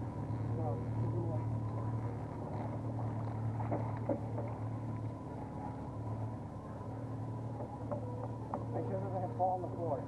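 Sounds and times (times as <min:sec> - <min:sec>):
boat engine humming: 0:00.0 - 0:10.0.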